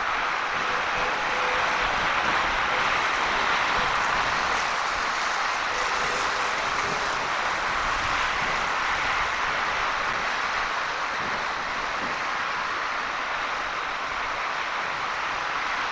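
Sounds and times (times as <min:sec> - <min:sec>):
strong storm wind rushing: 0:00.0 - 0:15.9.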